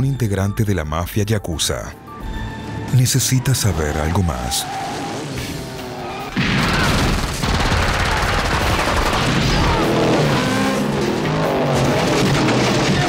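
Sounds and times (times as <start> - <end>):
action film music score: 0.0 - 13.0
explosion: 6.3 - 10.2
gunfire clatter: 6.4 - 9.8.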